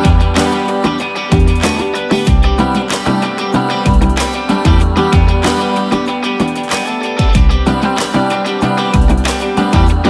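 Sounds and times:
guitar music: 0.0s - 10.0s.

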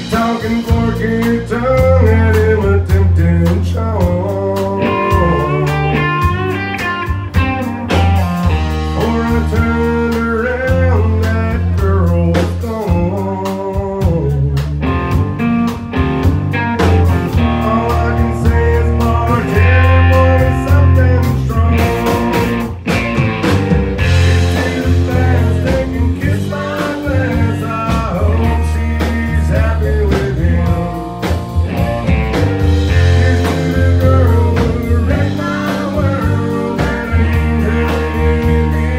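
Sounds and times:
man singing: 0.0s - 6.6s, 7.8s - 14.9s, 17.3s - 22.6s, 24.0s - 38.9s
drums: 0.0s - 38.9s
electric guitar: 0.0s - 38.9s.

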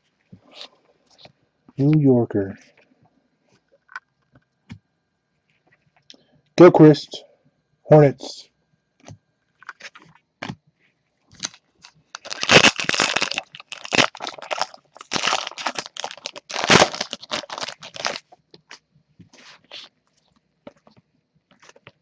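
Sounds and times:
foil wrapper crinkling and tearing: 11.3s - 18.8s.

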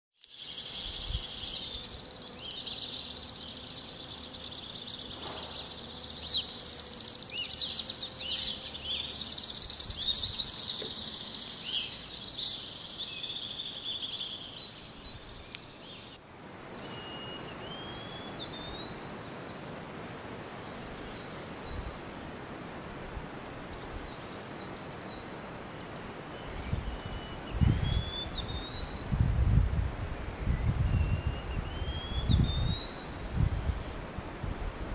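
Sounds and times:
songbirds chirping and trilling: 0.2s - 29.3s, 30.2s - 34.4s
thin rising bird whistle: 2.8s - 14.6s, 16.8s - 19.1s, 26.4s - 29.1s, 30.4s - 33.3s
wind thumps on microphone: 26.6s - 34.9s.

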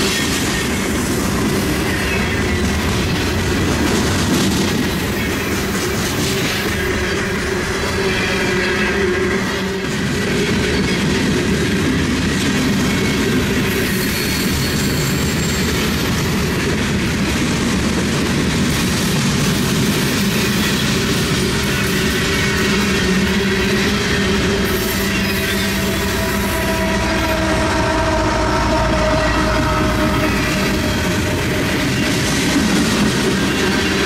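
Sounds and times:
freight train wheel and rail rumble: 0.0s - 34.0s
wheel squeal: 13.6s - 16.4s, 21.8s - 27.4s.

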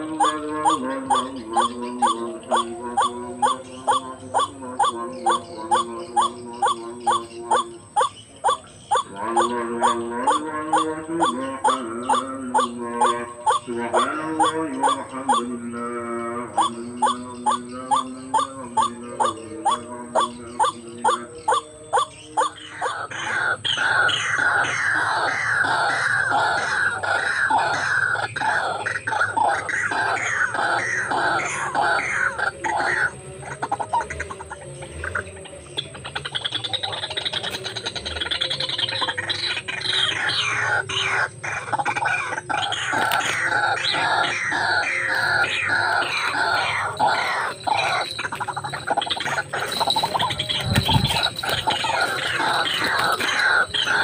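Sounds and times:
waterhen calling: 0.0s - 15.6s, 16.6s - 54.0s
steady droning tone: 30.2s - 54.0s.

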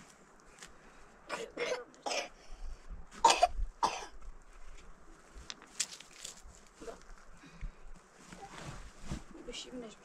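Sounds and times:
person coughing: 1.3s - 2.4s, 3.2s - 4.2s.

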